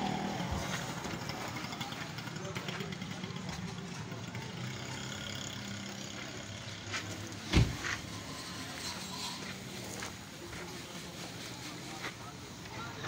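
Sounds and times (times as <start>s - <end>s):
vehicle engine idling: 0.0s - 13.0s
heavy thump: 7.4s - 8.0s.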